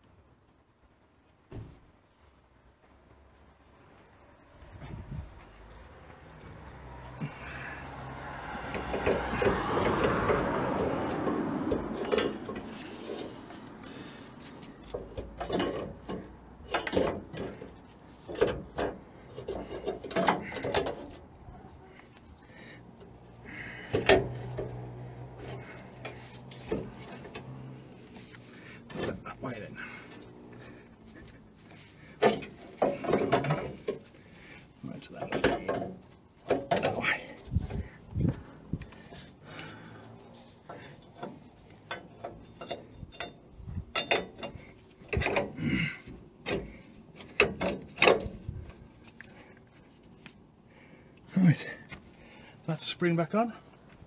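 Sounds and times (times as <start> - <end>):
metal scraping and clinking: 8.9 - 22.4, 23.0 - 50.4.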